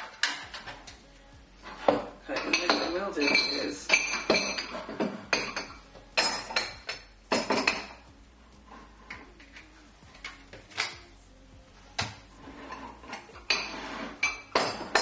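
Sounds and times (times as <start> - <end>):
crockery clinking: 1.7 - 8.0, 12.0 - 15.0.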